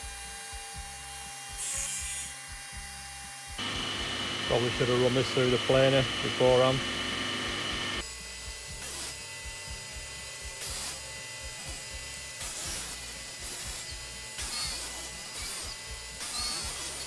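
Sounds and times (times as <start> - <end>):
dust extractor: 3.6 - 8.0
drum sander humming: 3.6 - 8.1
hissing sanding sound: 4.0 - 6.8.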